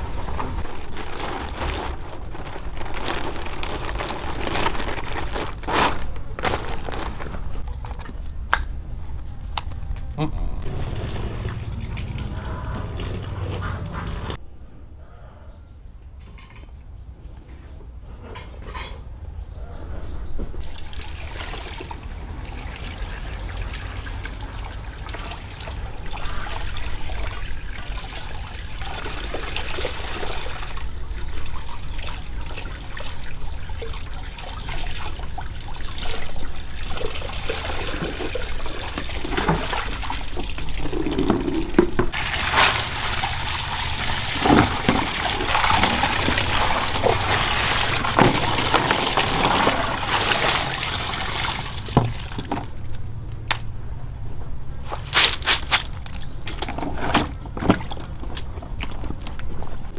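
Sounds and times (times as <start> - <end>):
water pouring and trickling: 0.0 - 8.2, 10.6 - 14.4, 20.6 - 53.1.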